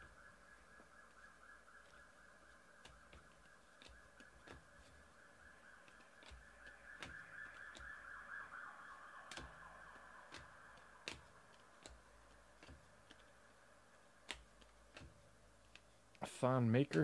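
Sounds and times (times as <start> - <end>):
trading cards clicking and tapping: 1.8 - 5.1, 5.8 - 8.0, 9.2 - 16.2, 16.8 - 17.0.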